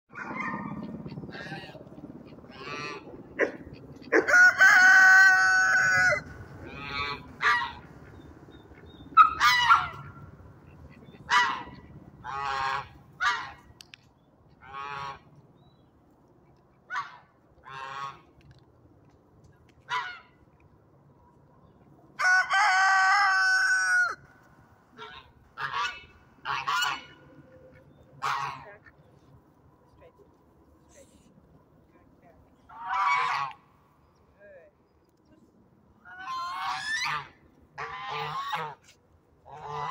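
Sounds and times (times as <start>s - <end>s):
geese honking: 0.7s - 10.2s, 11.1s - 13.6s, 14.6s - 15.3s, 17.0s - 18.3s, 25.0s - 29.1s, 32.7s - 33.7s, 36.0s - 39.9s.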